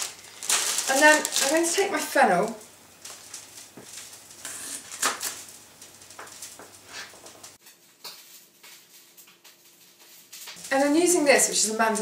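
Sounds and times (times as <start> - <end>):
faint steady background hum: 0.0 - 12.0.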